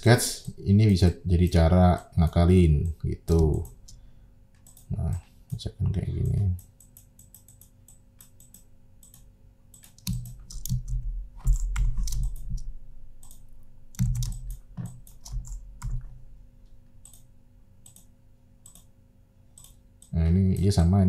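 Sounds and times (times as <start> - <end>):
computer mouse clicks: 3.3 - 5.6, 6.2 - 16.1, 17.0 - 18.9, 19.5 - 20.7.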